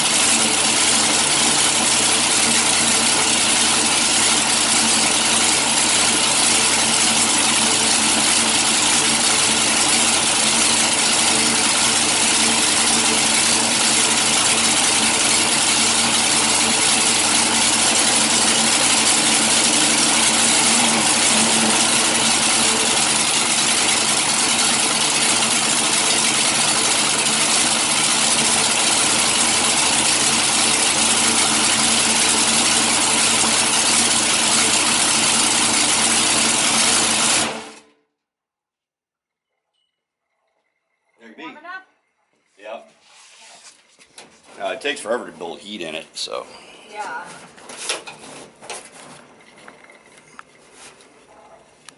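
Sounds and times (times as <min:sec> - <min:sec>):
dragster engine idling: 0:00.0 - 0:37.8.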